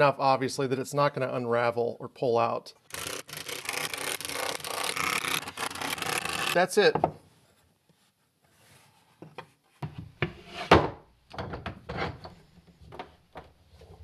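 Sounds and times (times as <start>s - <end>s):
wooden knocks and clunks: 6.9s - 7.2s, 9.2s - 13.6s.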